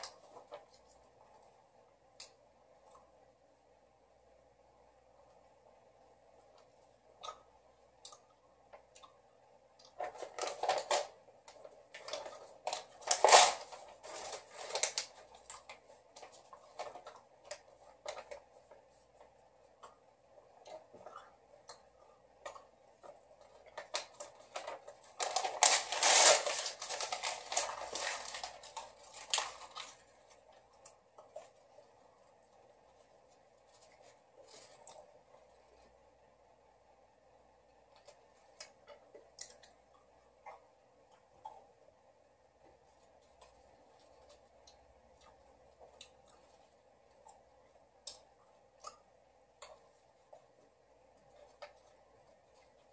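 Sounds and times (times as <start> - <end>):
paper tearing and crumpling: 12.6 - 15.2, 24.0 - 30.0.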